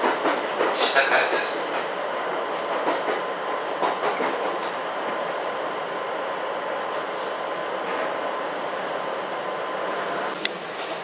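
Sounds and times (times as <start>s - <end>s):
rail joint clicks: 0.0s - 8.1s, 10.3s - 11.0s
train cabin rumble and hiss: 0.0s - 11.0s.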